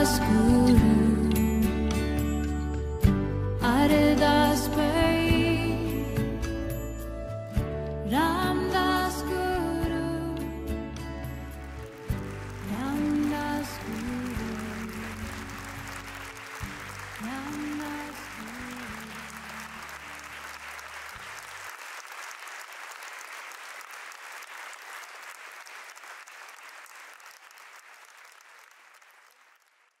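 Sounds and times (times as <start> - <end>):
low music: 0.0 - 20.5
audience applauding: 11.4 - 30.0.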